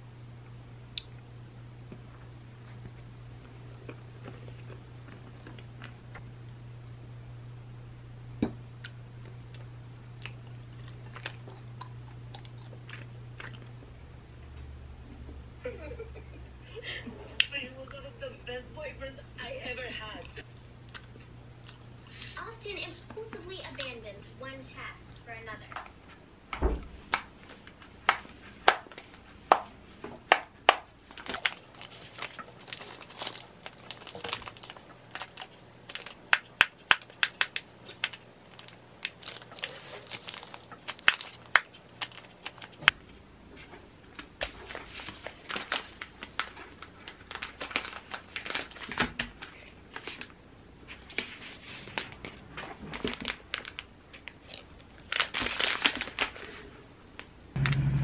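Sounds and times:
plastic bags crinkling: 0:31.0 - 0:42.9, 0:44.5 - 0:50.3, 0:52.9 - 0:56.6.

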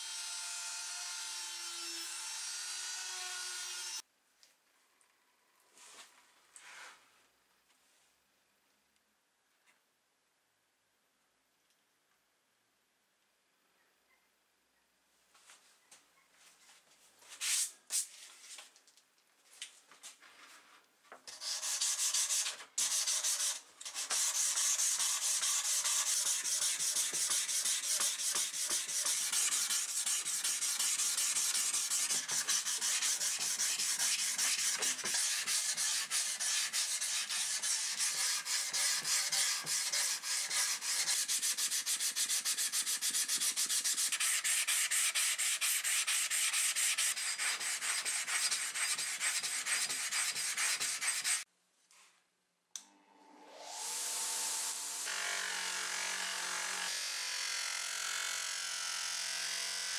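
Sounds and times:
sandpaper rubbing on metal: 0:21.3 - 0:51.4.

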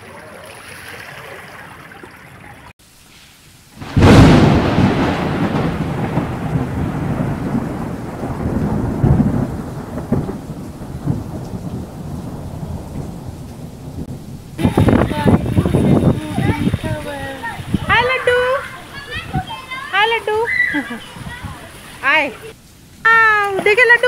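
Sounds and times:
thunder crack and rumble: 0:03.8 - 0:18.5.

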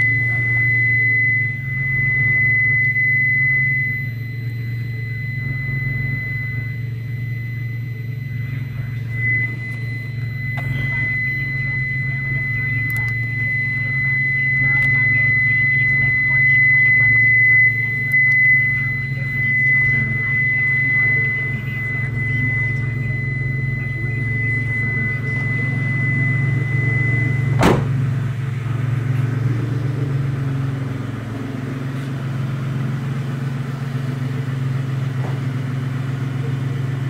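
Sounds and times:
car engine idling: 0:00.0 - 0:37.0
steady high-pitched tone: 0:00.0 - 0:37.0
sharp knock: 0:27.6 - 0:28.0.

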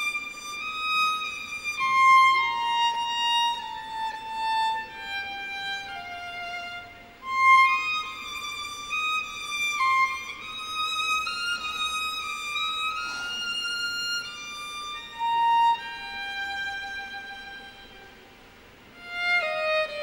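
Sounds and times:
solo violin slow melody: 0:00.0 - 0:20.0.

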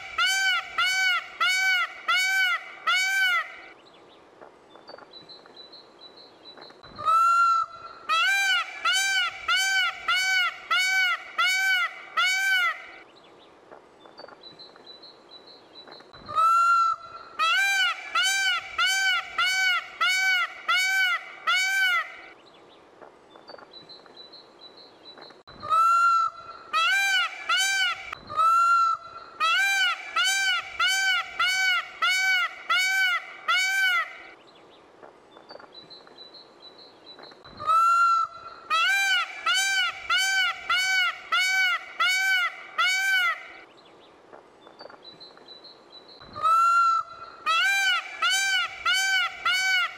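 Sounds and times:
peacocks honking calls: 0:00.0 - 0:03.8, 0:07.0 - 0:13.0, 0:16.3 - 0:22.4, 0:25.6 - 0:34.4, 0:37.6 - 0:43.7, 0:46.4 - 0:49.9.

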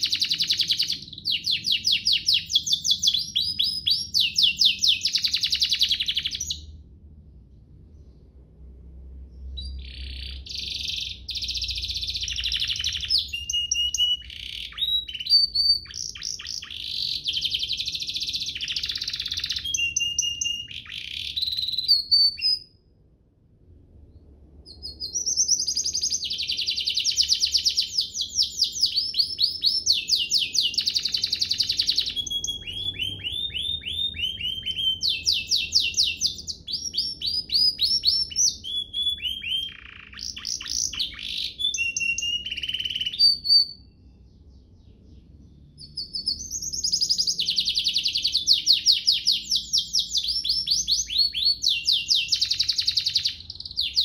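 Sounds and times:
canary singing trills: 0:00.0 - 0:06.8, 0:09.2 - 0:22.8, 0:24.6 - 0:54.0.

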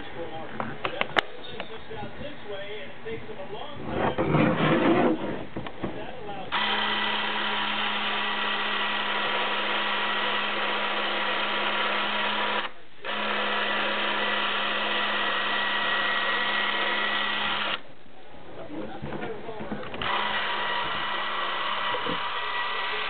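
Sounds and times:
film camera motor whirring: 0:06.6 - 0:07.7, 0:20.0 - 0:23.0.

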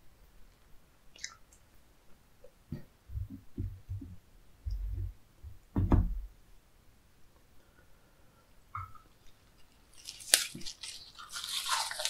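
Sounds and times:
soft low thumps at table: 0:02.7 - 0:06.3.

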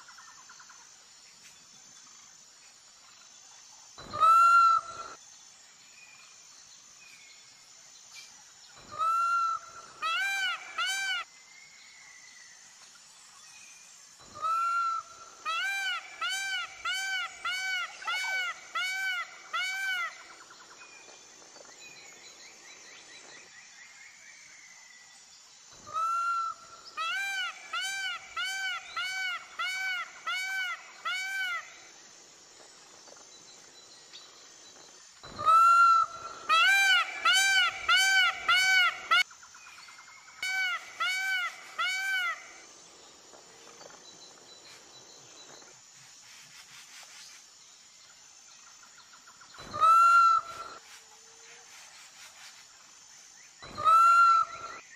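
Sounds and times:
faint outdoor background: 0:00.0 - 0:54.9
peafowl calling: 0:04.1 - 0:05.2, 0:08.9 - 0:11.3, 0:14.4 - 0:20.4, 0:25.9 - 0:31.7, 0:35.3 - 0:39.3, 0:40.4 - 0:42.6, 0:49.6 - 0:50.8, 0:53.7 - 0:54.8.

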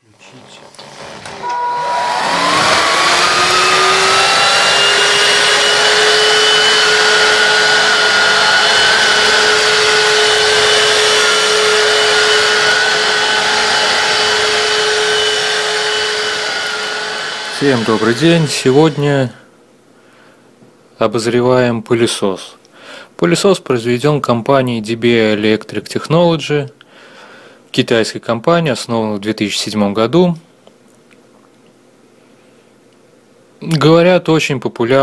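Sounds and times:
vacuum cleaner motor whining: 0:00.4 - 0:19.4.

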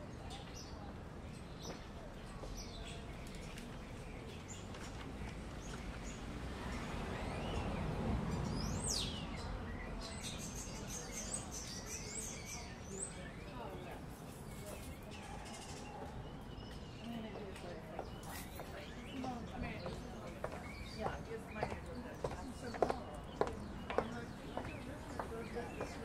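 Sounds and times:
low traffic rumble: 0:00.0 - 0:26.0
small birds chirping: 0:00.0 - 0:26.0
vehicle passing: 0:05.4 - 0:10.4.

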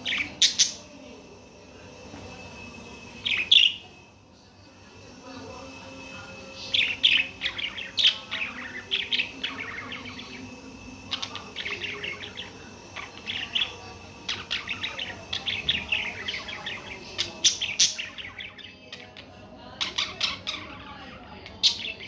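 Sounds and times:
budgerigars chirping: 0:06.6 - 0:10.5, 0:11.1 - 0:19.1.

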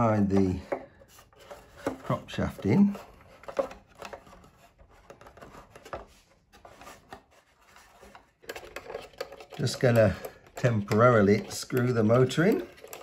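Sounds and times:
metal shaft scraping in a tube: 0:06.8 - 0:13.0.

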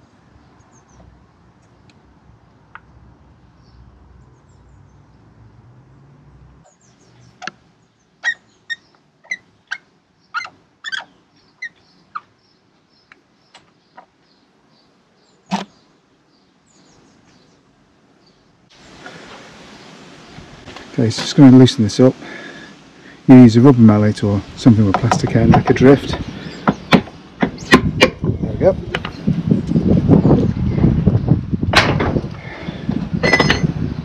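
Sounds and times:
faint bird chirps: 0:06.6 - 0:17.6
metal parts clicking and clinking: 0:33.2 - 0:33.7.

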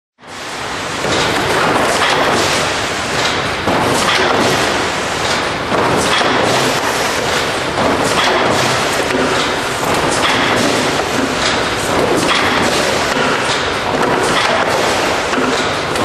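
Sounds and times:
machine rushing noise: 0:00.3 - 0:16.0
thumps and clatter: 0:01.0 - 0:16.0.

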